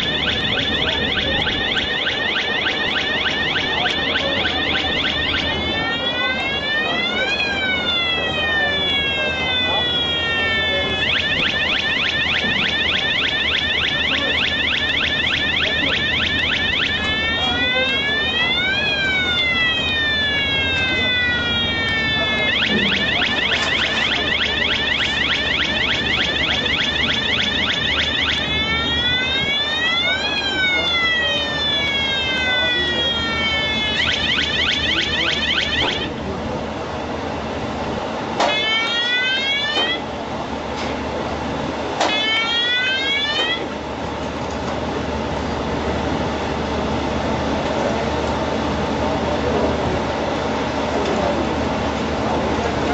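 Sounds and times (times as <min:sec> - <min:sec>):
electronic warning siren: 0:00.0 - 0:36.2, 0:38.4 - 0:40.2, 0:42.0 - 0:43.9.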